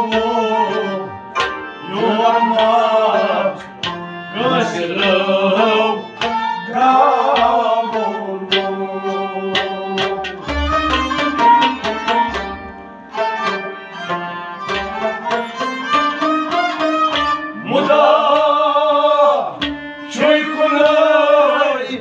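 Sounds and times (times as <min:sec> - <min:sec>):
bowed sarangi: 0:00.0 - 0:22.0
harmonium: 0:00.0 - 0:22.0
hand drum strokes: 0:09.5 - 0:13.7.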